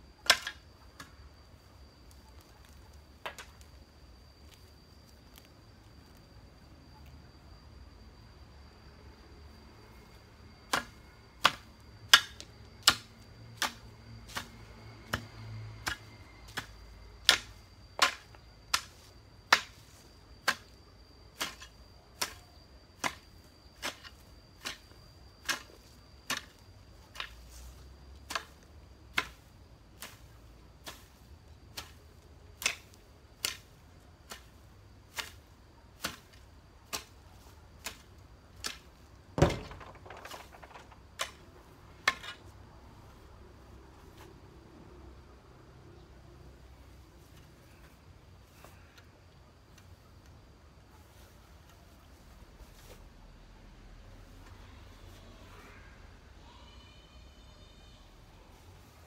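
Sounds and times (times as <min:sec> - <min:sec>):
hoe chopping into soil: 0:10.7 - 0:20.7.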